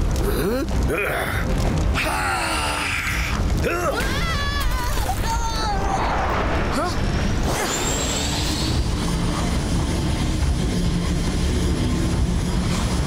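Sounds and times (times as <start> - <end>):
steady drone: 6.1 - 13.0.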